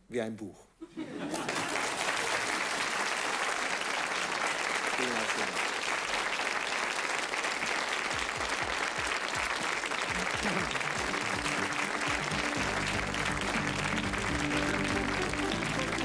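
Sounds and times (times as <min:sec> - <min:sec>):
audience applauding: 0:01.2 - 0:16.0
music with low notes: 0:10.2 - 0:16.0.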